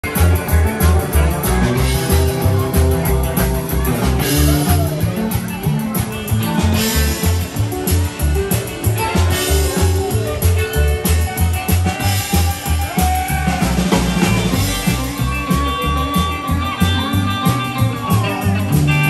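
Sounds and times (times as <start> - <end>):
drums with cymbals: 0.0 - 19.0
electric guitar lead: 0.0 - 19.0
upright bass: 0.0 - 19.0.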